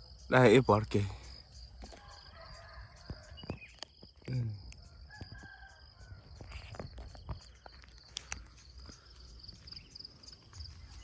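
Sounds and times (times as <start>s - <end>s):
high insect trill: 0.0s - 11.0s
footsteps through dry grass: 6.2s - 11.0s.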